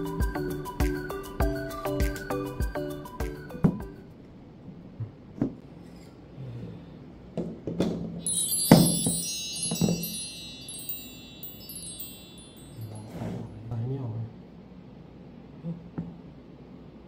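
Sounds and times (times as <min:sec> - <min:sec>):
wind chimes tinkling: 0:08.2 - 0:13.4.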